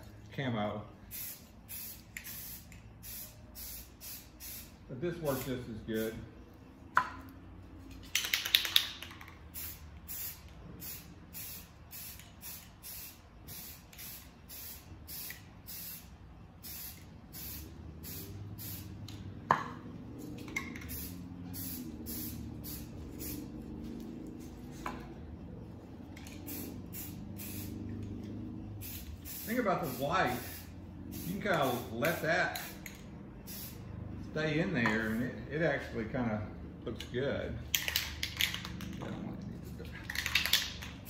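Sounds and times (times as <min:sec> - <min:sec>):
spray can hissing bursts: 0:01.0 - 0:05.5, 0:08.1 - 0:19.2, 0:20.3 - 0:24.6, 0:26.2 - 0:27.9, 0:28.8 - 0:33.8.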